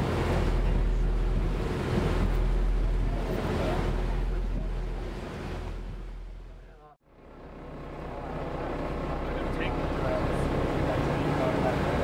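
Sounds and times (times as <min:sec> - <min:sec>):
wind buffeting microphone: 0:00.0 - 0:06.6
boat engine droning: 0:00.0 - 0:12.0
water washing past hull: 0:00.0 - 0:12.0.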